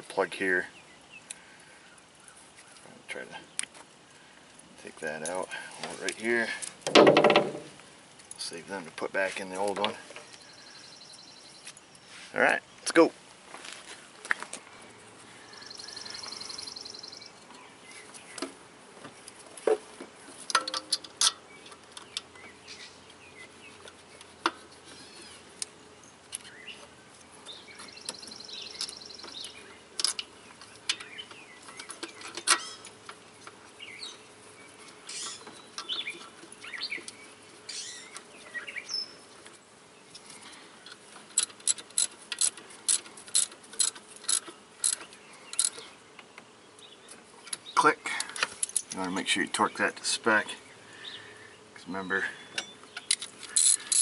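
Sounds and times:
bird trill: 15.5s - 17.4s, 30.6s - 33.0s, 33.8s - 39.3s
metal tools clinking: 20.5s - 21.4s, 48.1s - 49.1s, 52.6s - 54.0s
ratchet clicks: 40.9s - 45.8s, 53.0s - 54.0s.

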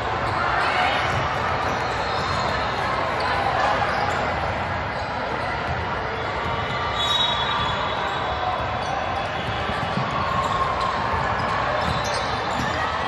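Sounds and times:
crowd hubbub: 0.0s - 13.0s
basketball bouncing on court: 5.4s - 7.8s, 8.5s - 13.0s.

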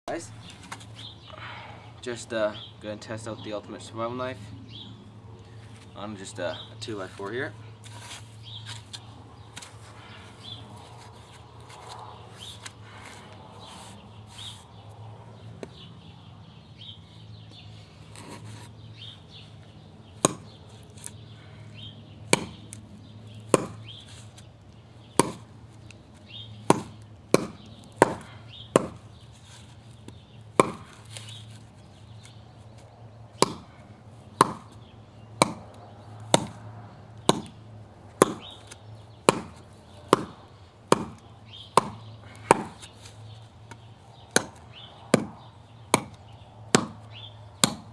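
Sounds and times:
knife chopping into wood: 20.2s - 20.5s, 22.3s - 22.6s, 23.5s - 23.8s, 25.2s - 25.5s, 26.6s - 29.0s, 30.1s - 31.0s, 33.4s - 33.7s, 34.4s - 34.8s, 35.4s - 36.6s, 37.3s - 37.5s, 38.2s - 42.9s, 44.3s - 47.9s.

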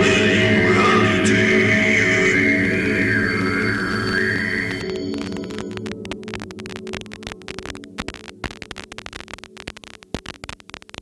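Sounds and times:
low metal chord: 0.0s - 4.4s
crackling static: 0.0s - 11.0s.

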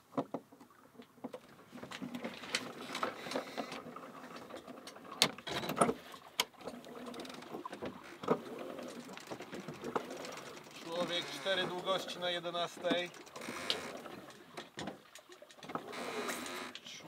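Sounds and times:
deck gear rattling: 7.1s - 16.5s.

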